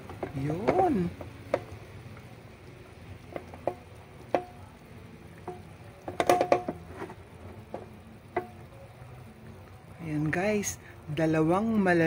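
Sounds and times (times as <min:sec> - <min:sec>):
fish juices popping and crackling: 0:00.0 - 0:08.6.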